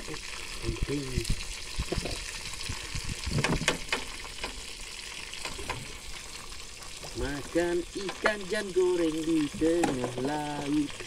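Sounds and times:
fish sizzling in hot oil: 0:00.0 - 0:11.0.

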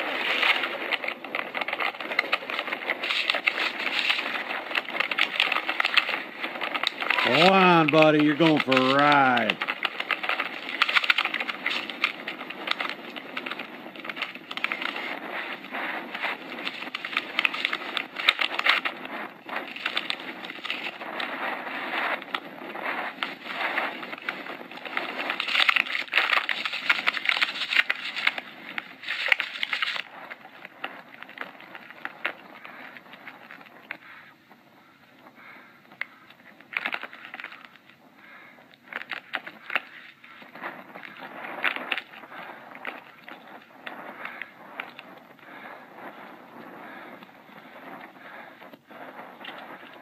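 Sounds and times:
wind and snowmobile rushing: 0:11.5 - 0:25.4.

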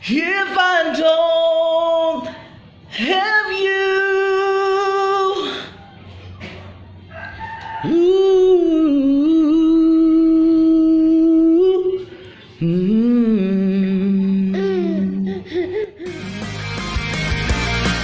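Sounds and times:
man singing a pop ballad: 0:00.0 - 0:05.6.

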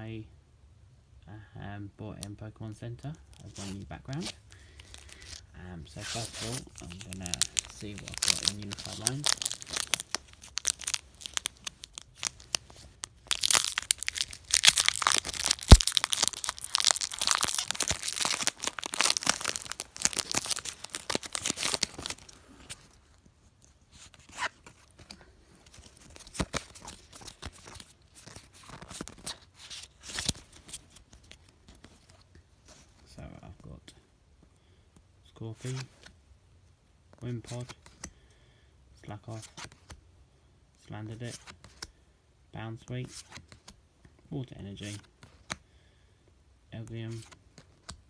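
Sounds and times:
cards rustling: 0:03.2 - 0:23.3, 0:23.9 - 0:32.9, 0:37.4 - 0:38.1, 0:46.8 - 0:48.0
foil wrapper tearing and crinkling: 0:06.1 - 0:22.4.

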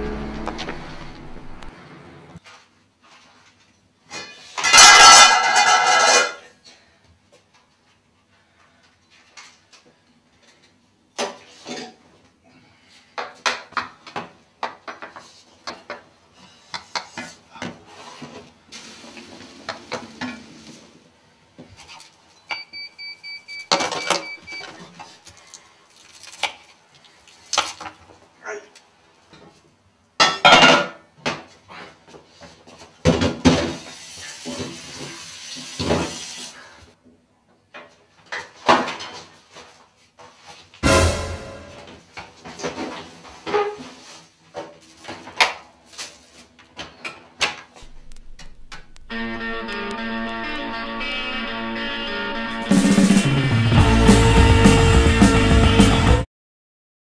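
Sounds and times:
pots and utensils clinking: 0:04.5 - 0:06.5.

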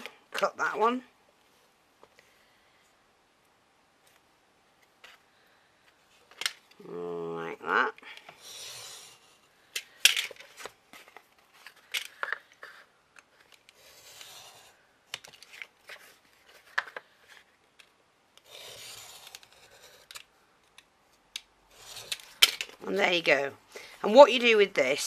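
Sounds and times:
knife scraping through card: 0:13.8 - 0:14.8, 0:18.4 - 0:20.1, 0:21.7 - 0:22.3.

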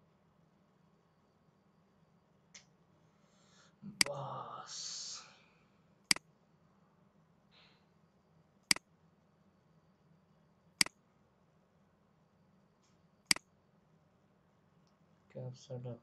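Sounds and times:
breathy noise: 0:03.2 - 0:05.6.

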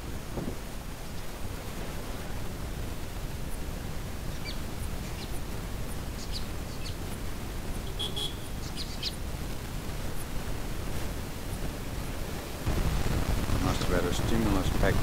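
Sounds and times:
wind noise rumble: 0:00.0 - 0:15.0
small birds chirping: 0:03.4 - 0:09.3.

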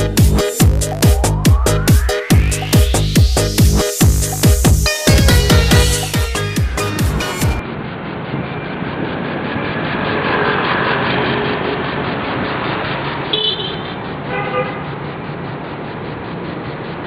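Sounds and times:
motorbikes passing: 0:05.6 - 0:17.0
horn beeps: 0:13.3 - 0:14.8.

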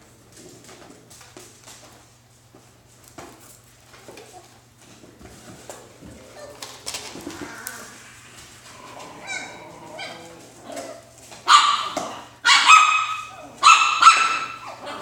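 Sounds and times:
puppies yipping: 0:06.3 - 0:10.4, 0:11.5 - 0:15.0
high-pitched puppy barks: 0:11.4 - 0:15.0.

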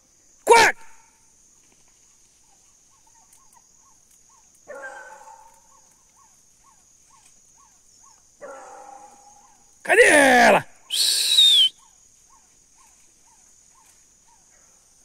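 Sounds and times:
hounds baying in the distance: 0:02.2 - 0:09.8, 0:11.4 - 0:15.0.

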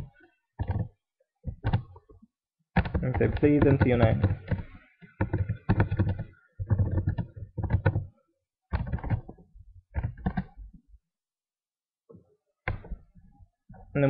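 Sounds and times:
computer keyboard typing: 0:00.6 - 0:02.0, 0:02.8 - 0:08.1, 0:08.7 - 0:10.6.

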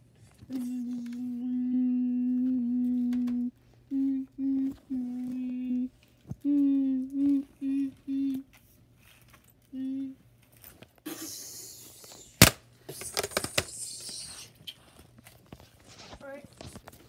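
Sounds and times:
person humming: 0:00.4 - 0:08.5, 0:09.7 - 0:10.2
rustling handling noise: 0:08.4 - 0:09.7, 0:14.8 - 0:17.0.

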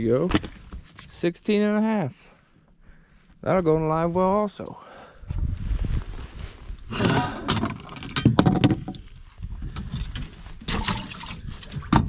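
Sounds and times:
knocking and clattering in a boat: 0:07.1 - 0:12.0.

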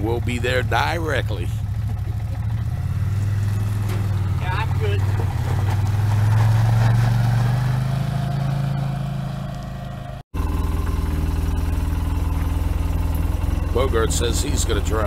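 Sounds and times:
utility vehicle engine idling: 0:00.0 - 0:06.2, 0:08.2 - 0:15.0
utility vehicle engine pulling away: 0:00.0 - 0:15.0.

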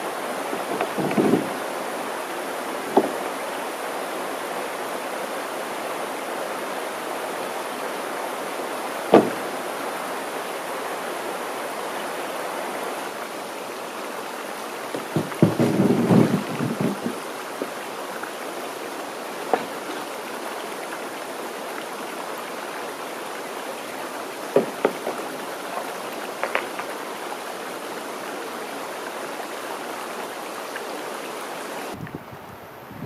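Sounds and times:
steady rushing hiss: 0:00.0 - 0:33.0
hollow knocks on wooden canoe: 0:00.5 - 0:01.6, 0:02.9 - 0:03.3, 0:09.1 - 0:09.5, 0:14.9 - 0:17.7, 0:19.5 - 0:20.0, 0:24.5 - 0:25.4, 0:26.4 - 0:26.9.

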